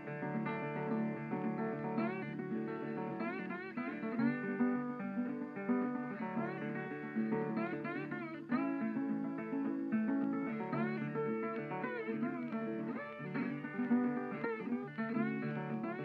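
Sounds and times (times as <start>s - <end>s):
plucked guitar melody: 0.0s - 16.0s.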